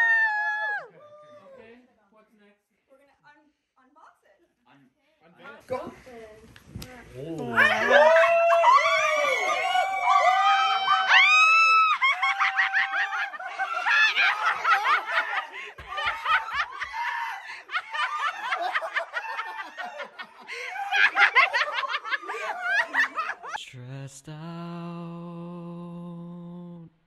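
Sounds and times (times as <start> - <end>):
people laughing and squealing: 7.6 - 23.6.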